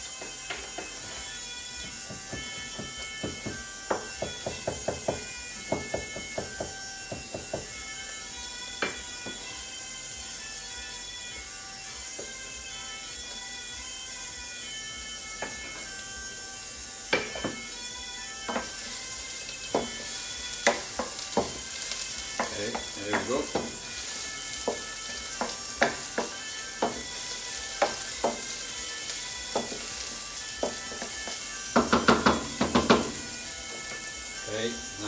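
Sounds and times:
garlic sizzling in oil: 0.0s - 35.0s
wooden spoon scraping and knocking pan: 19.7s - 28.7s, 29.4s - 34.1s.

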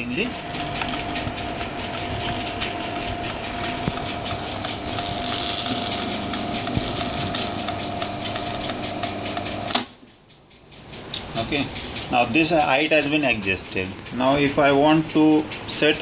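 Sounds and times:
shutter motor whining: 0.0s - 9.9s
gears ticking: 0.0s - 16.0s.

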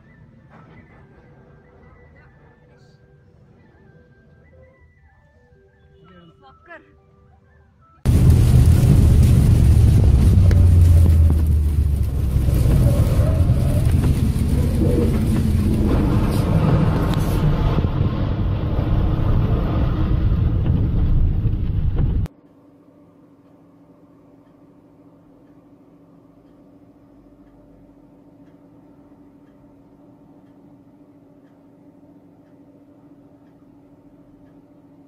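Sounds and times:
vehicle driving on wet road: 8.1s - 22.3s
faint hum: 8.1s - 35.0s.

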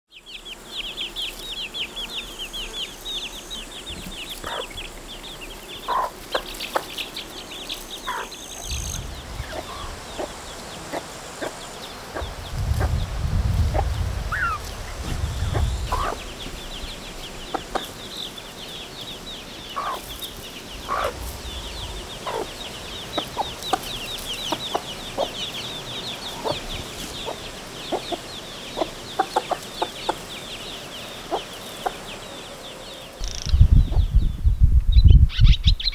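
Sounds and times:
chicks peeping: 0.2s - 32.4s, 33.2s - 35.9s
hen clucking: 4.4s - 4.8s, 5.8s - 7.0s, 8.0s - 12.9s, 13.7s - 14.7s, 15.4s - 18.0s, 19.8s - 20.1s, 20.9s - 25.6s, 26.2s - 30.2s
low rumble: 8.5s - 17.6s, 20.0s - 24.6s, 33.2s - 35.4s.

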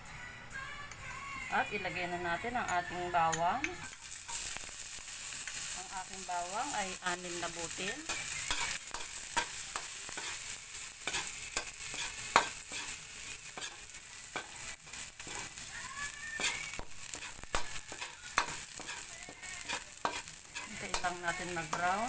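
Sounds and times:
garlic sizzling in oil: 3.8s - 22.0s
metal spoon scraping pan: 7.7s - 15.6s, 16.4s - 22.0s.

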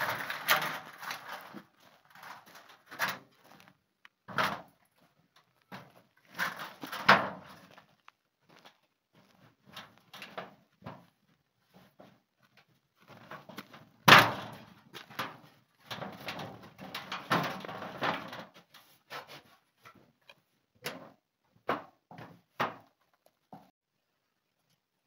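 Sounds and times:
corrugated sheet rattling: 0.0s - 3.7s, 4.3s - 7.7s, 13.1s - 20.1s
timber frame knocking and clattering: 13.2s - 18.7s.

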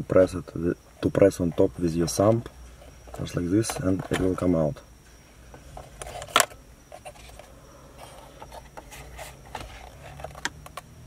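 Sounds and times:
plastic rubbing: 5.7s - 10.8s.

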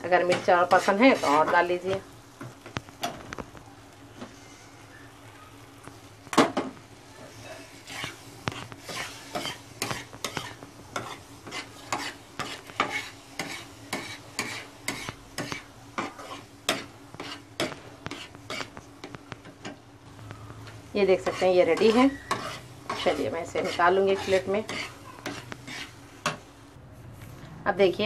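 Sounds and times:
metal spatula scraping on griddle: 0.0s - 2.4s, 7.2s - 19.8s, 21.0s - 26.4s
soft sizzle: 0.0s - 28.0s.

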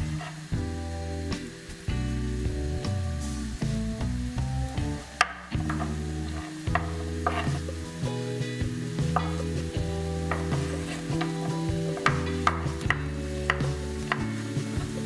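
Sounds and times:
onion sizzling in a frying pan: 0.0s - 15.0s
soft background music: 0.0s - 15.0s
knife tapping cutting board: 5.2s - 7.6s, 9.0s - 9.6s, 10.3s - 15.0s.

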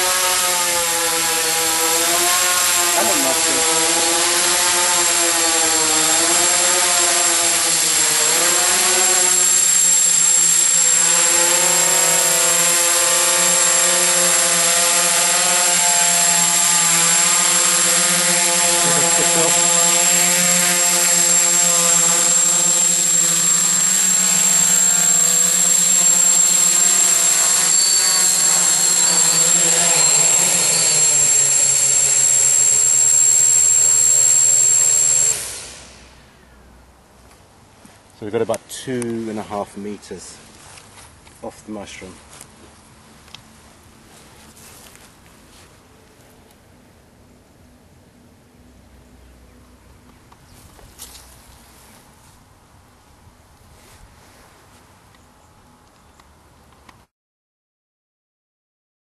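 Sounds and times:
drone propellers whirring: 0.0s - 36.4s.

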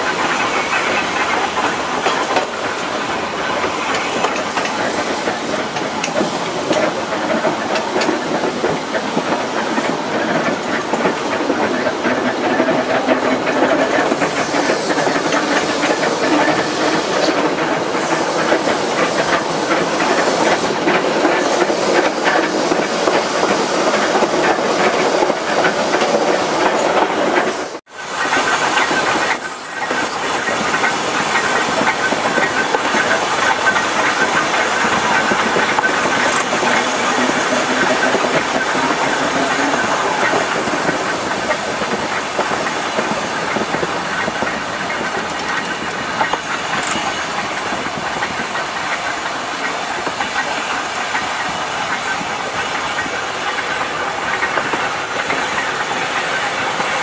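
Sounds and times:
tram wheels rumbling on rails: 0.0s - 57.0s
high wheel squeals: 29.2s - 30.6s.

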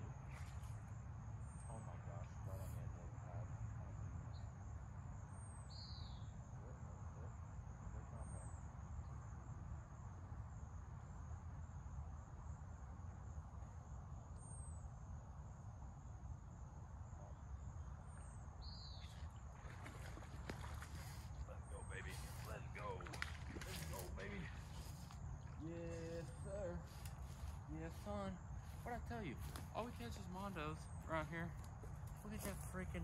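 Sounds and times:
bird chirping: 5.2s - 7.3s, 17.8s - 33.0s.

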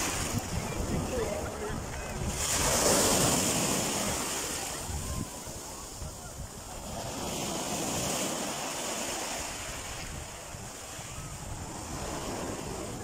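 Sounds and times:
wind buffeting microphone: 0.0s - 8.4s
waves breaking on shore: 0.0s - 13.0s.

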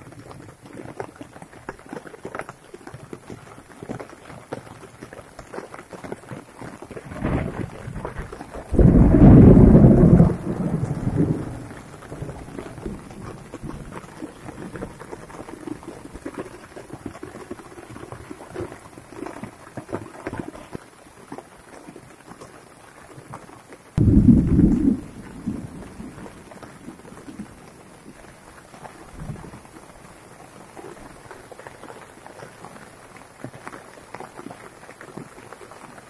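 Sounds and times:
rain falling on plants: 0.0s - 36.0s
loud low rumble: 24.0s - 26.7s.

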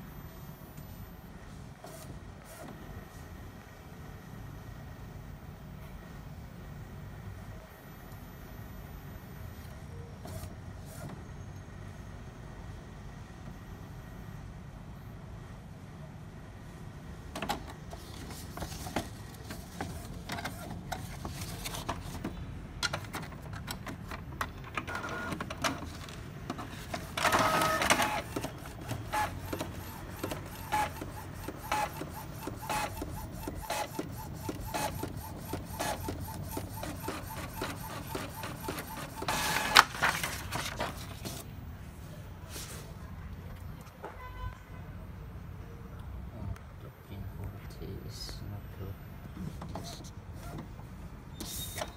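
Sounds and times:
paper rustling: 17.9s - 22.3s, 36.6s - 41.5s
inkjet printer clicking and ticking: 22.8s - 39.9s.

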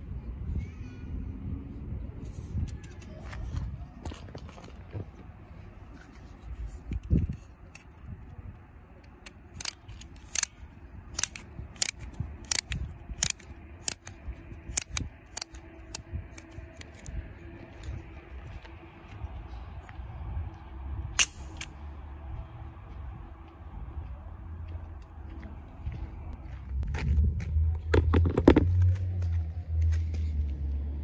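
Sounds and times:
wind rumble on microphone: 0.0s - 31.0s
sharp plastic clicks: 9.0s - 17.1s
toy shooter snap: 9.2s - 17.1s.

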